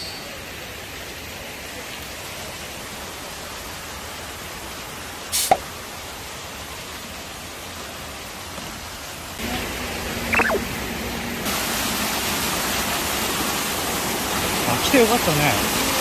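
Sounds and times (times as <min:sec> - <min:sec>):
stream rushing over rocks: 0:00.4 - 0:16.0
short rising and falling call: 0:10.3 - 0:10.6.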